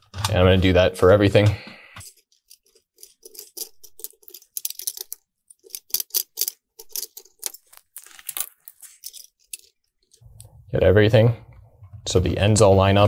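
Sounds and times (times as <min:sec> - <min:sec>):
metal box being handled: 0:02.0 - 0:10.2.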